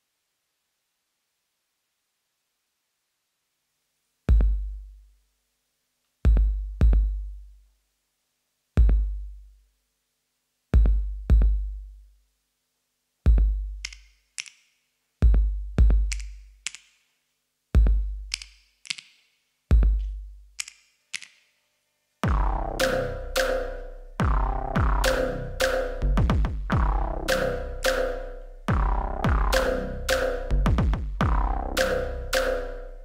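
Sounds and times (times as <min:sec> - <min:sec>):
booming kick drums: 0:04.3 - 0:04.7, 0:22.2 - 0:22.9, 0:24.2 - 0:25.2, 0:26.0 - 0:27.4, 0:28.7 - 0:29.7, 0:30.5 - 0:31.8.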